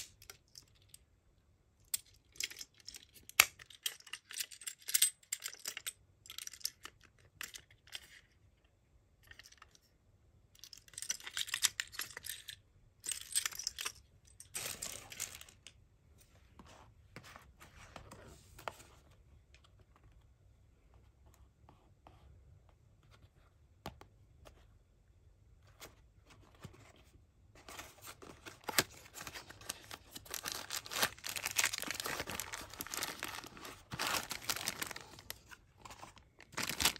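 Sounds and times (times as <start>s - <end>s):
toy truck clicks and rattles: 1.9s - 8.2s, 10.6s - 15.7s.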